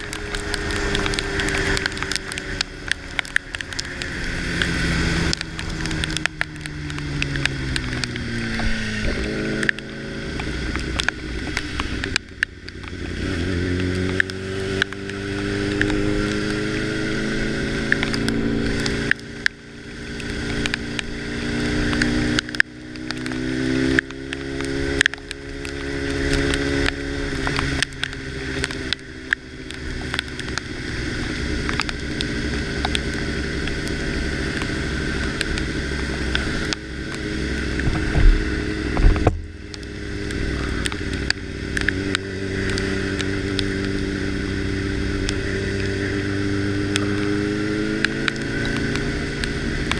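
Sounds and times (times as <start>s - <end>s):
motorcycle engine shifting gears: 0.0s - 49.9s
raindrops ticking on camera: 0.0s - 49.9s
wind rush over microphone: 37.7s - 39.6s.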